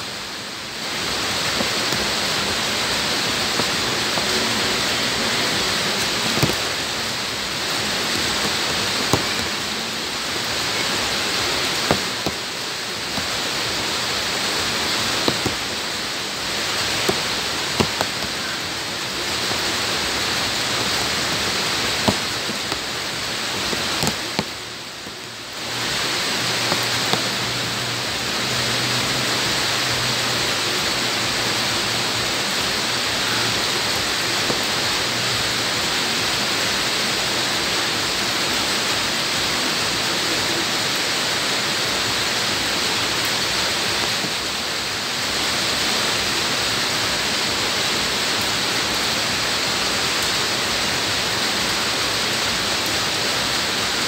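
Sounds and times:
rain hissing on ground: 0:00.0 - 0:54.0
large raindrop ticking: 0:00.1 - 0:37.6.

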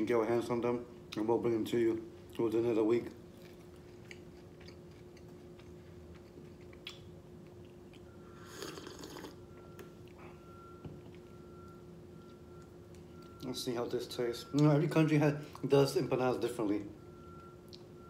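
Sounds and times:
faint steady hum: 0:00.0 - 0:18.0
mouth chewing with clicks: 0:03.3 - 0:10.2, 0:17.4 - 0:17.9
sip from a mug: 0:08.4 - 0:09.4.

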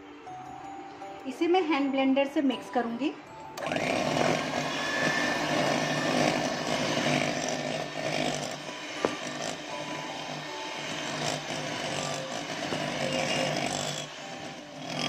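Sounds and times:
electric hand mixer whisking: 0:03.6 - 0:15.0.

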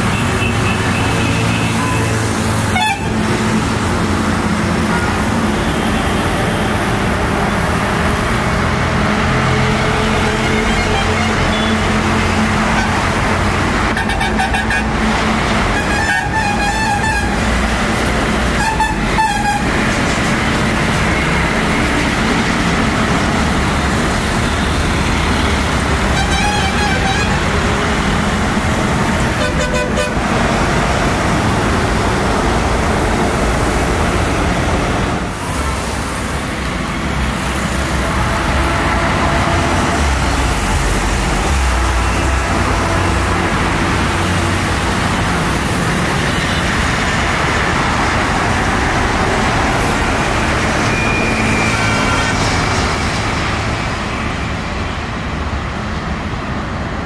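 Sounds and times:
road traffic noise: 0:00.0 - 0:57.0
vehicle horns tooting: 0:00.1 - 0:03.2, 0:10.2 - 0:12.0, 0:18.6 - 0:19.8, 0:26.1 - 0:27.5, 0:29.3 - 0:30.2.

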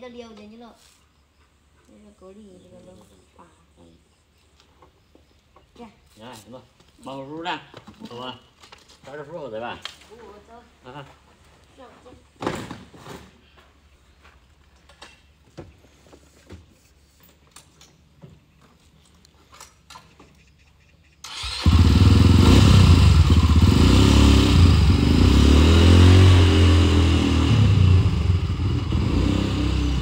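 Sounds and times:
motorcycle engine running loudly: 0:21.4 - 0:30.0.

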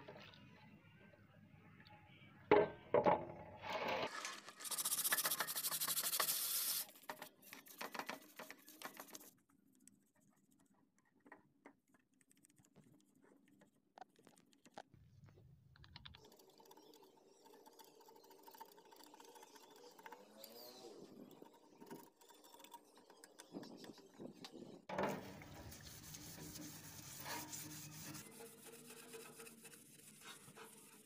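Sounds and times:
brush scrubbing plastic: 0:04.1 - 0:09.4, 0:25.0 - 0:31.0.

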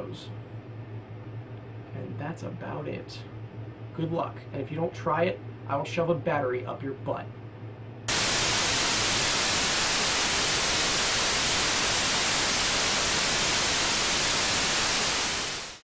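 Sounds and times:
white noise static hiss: 0:08.1 - 0:15.8.

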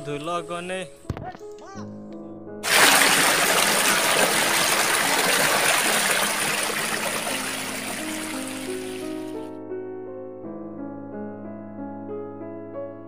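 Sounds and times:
river water rushing over rocks: 0:02.6 - 0:09.2.

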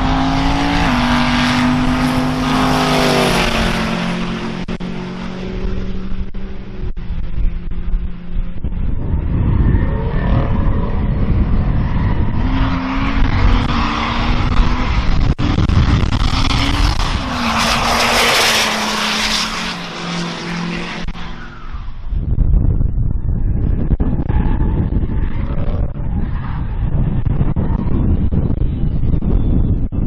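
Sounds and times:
truck engine revving: 0:00.0 - 0:07.2.

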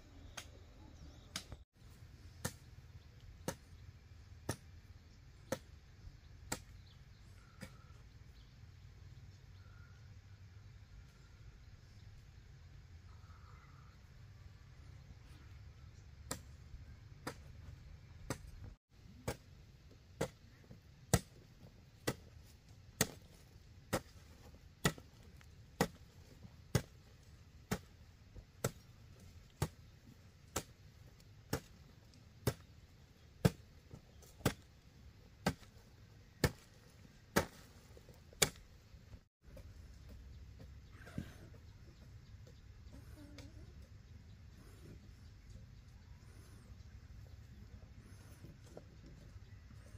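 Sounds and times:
tool chopping strikes: 0:38.4 - 0:38.6.

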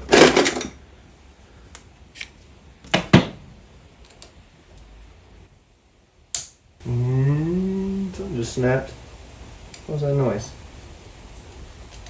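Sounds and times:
sharp high snap: 0:06.3 - 0:06.6.

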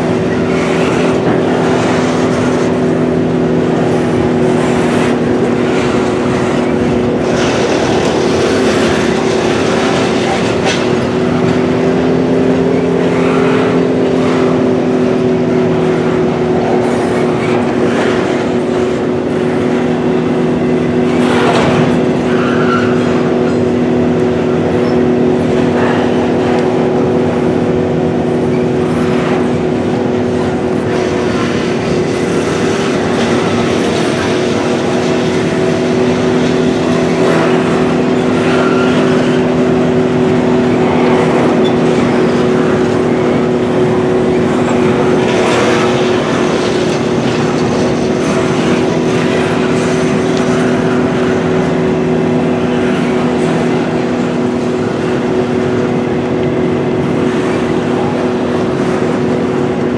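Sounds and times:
train wheels rumbling on rails: 0:00.0 - 0:59.9
wheels clacking over rail joints: 0:00.0 - 0:59.9.

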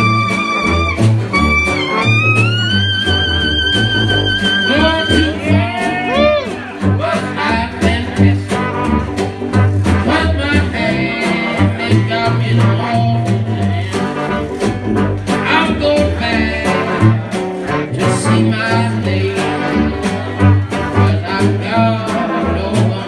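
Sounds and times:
tenor saxophone: 0:00.0 - 0:05.5
clarinet: 0:00.0 - 0:07.7
sousaphone bass line: 0:00.0 - 0:17.3
strummed guitar: 0:00.0 - 0:23.0
trombone: 0:00.0 - 0:23.0
trumpet: 0:00.0 - 0:23.0.

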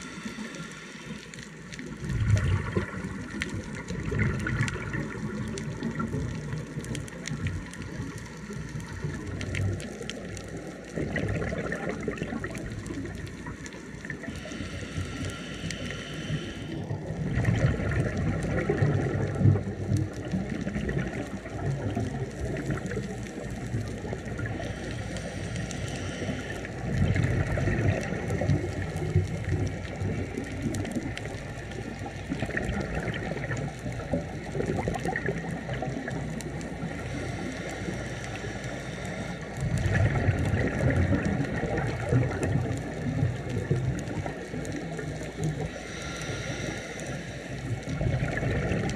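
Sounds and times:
regulator hiss on inhale: 0:00.0 - 0:02.1, 0:07.8 - 0:10.8, 0:12.8 - 0:17.1, 0:24.0 - 0:32.2, 0:36.0 - 0:40.0, 0:44.9 - 0:48.3
exhaust bubbles underwater: 0:00.0 - 0:48.9.

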